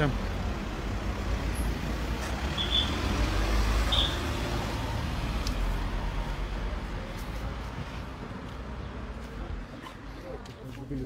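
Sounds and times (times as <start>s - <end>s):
street traffic: 0.0s - 11.0s
click: 5.4s - 5.6s.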